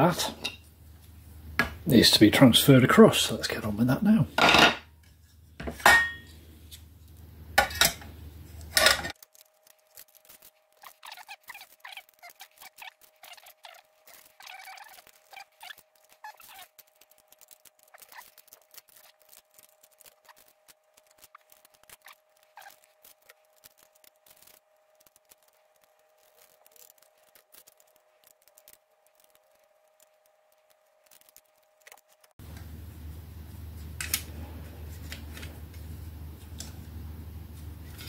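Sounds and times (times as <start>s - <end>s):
faint steady hum: 0.0s - 38.0s.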